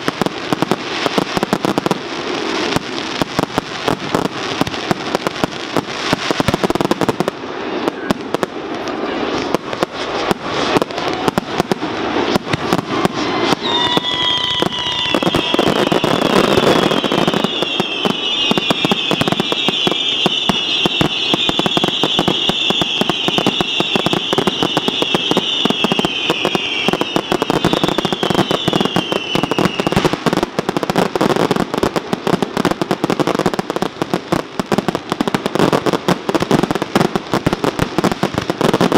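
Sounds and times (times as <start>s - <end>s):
fireworks bangs and crackling: 0.0s - 38.9s
firework whistles falling in pitch: 12.3s - 30.3s.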